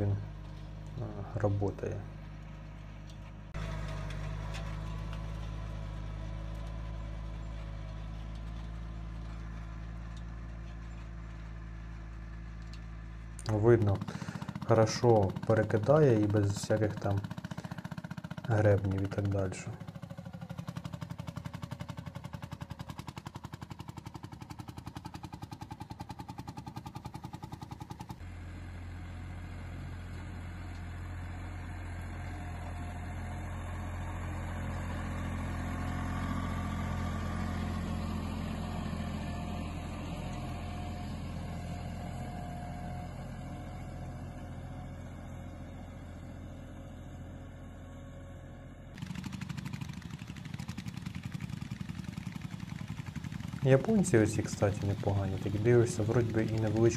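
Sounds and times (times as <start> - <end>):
diesel tractor engine running: 0.0 - 56.9
tractor engine pulsing: 0.3 - 28.2, 49.0 - 56.9.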